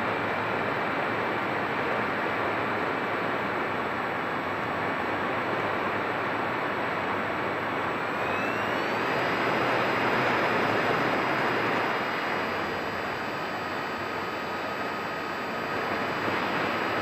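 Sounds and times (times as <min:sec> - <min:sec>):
electric motor whine: 0:07.6 - 0:17.0.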